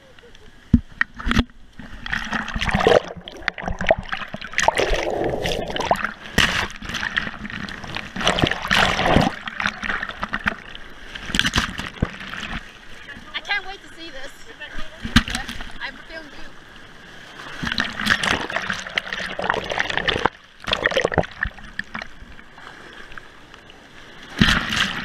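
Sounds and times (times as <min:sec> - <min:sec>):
surf sloshing and splashing: 0:00.0 - 0:25.0
water splashing against camera housing: 0:15.0 - 0:15.7.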